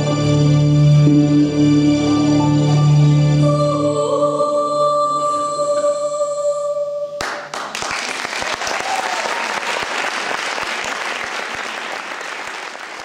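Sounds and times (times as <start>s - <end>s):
audience applause: 7.2s - 13.0s.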